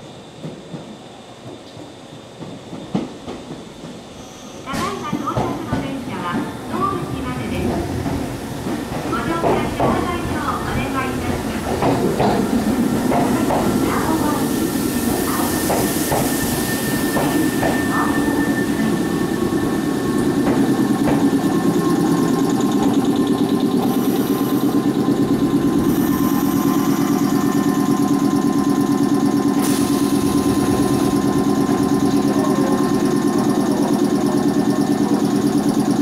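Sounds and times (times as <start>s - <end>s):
electric train pulsing hum: 5.0s - 36.0s
air hiss of train doors: 11.8s - 18.9s, 29.6s - 31.1s.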